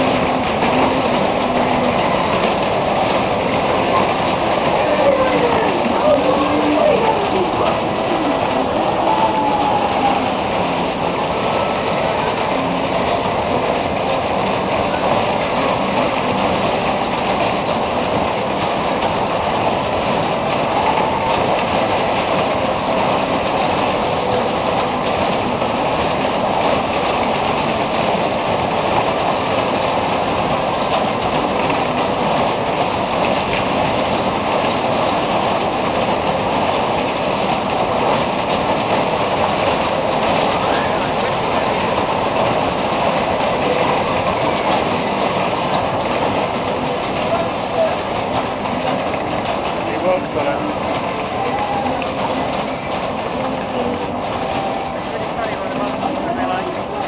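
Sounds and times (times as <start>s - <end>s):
fairground ride rumbling and clattering: 0.0s - 57.0s.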